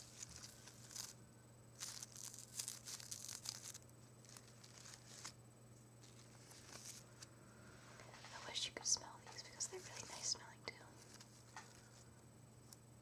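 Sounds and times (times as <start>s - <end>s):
fingers rustling flower petals: 0.0s - 5.4s, 6.0s - 7.3s.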